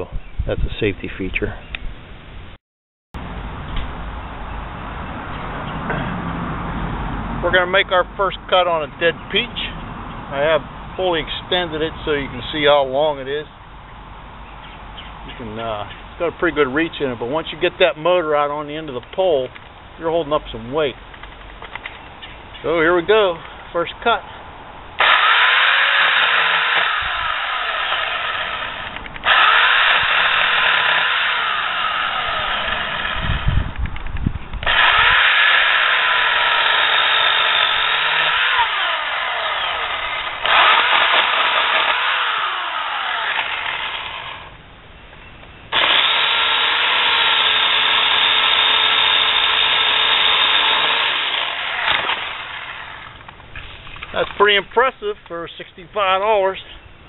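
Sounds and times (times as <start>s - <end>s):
electric chainsaw cutting branches: 25.0s - 33.6s, 34.6s - 44.6s, 45.7s - 53.3s.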